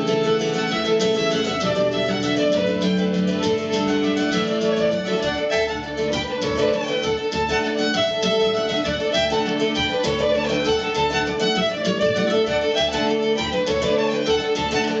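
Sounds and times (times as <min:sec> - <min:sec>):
acoustic guitar accompaniment: 0:00.0 - 0:15.0
fiddles playing: 0:00.0 - 0:15.0.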